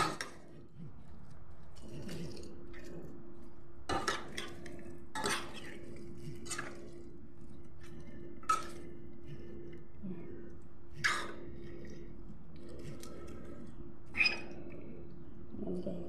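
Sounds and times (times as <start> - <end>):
steady low hum: 0.0 - 16.0
spoon scraping a metal pot: 3.9 - 6.8.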